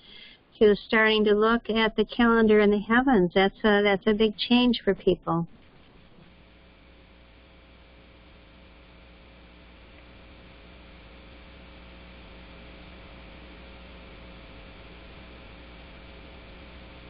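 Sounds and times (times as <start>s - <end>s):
electrical hum: 0.0s - 17.0s
background hiss: 5.5s - 17.0s.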